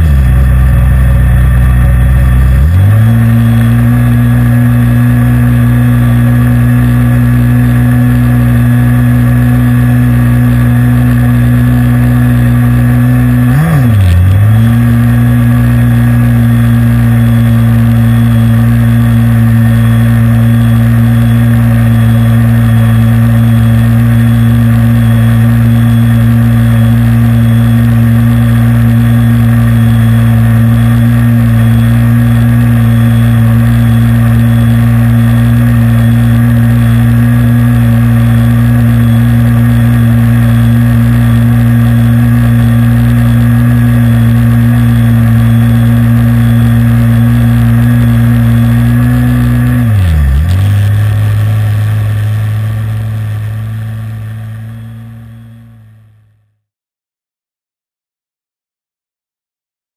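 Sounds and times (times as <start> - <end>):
model airboat engine running: 14.3 - 56.0.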